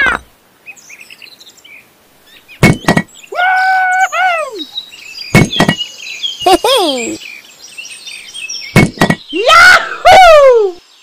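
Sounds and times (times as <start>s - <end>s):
squeaky high-pitched cry: 0.0s - 0.2s, 3.3s - 4.7s
sharp knocks: 2.6s - 3.1s, 5.3s - 5.8s, 8.8s - 9.3s.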